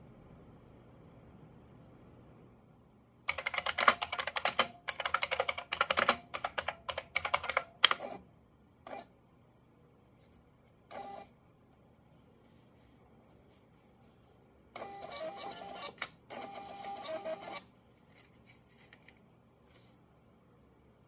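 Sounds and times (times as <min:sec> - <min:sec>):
keyboard typing clicks: 0:03.3 - 0:08.0.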